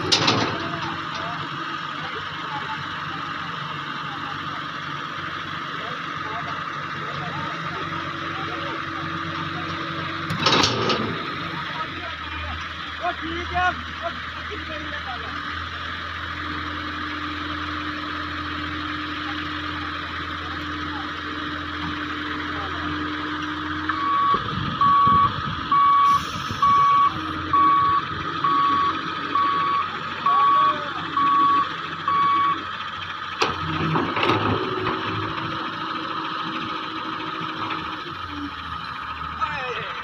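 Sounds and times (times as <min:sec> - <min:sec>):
diesel engine running: 0:00.0 - 0:40.0
travel alarm beeps: 0:24.0 - 0:32.6.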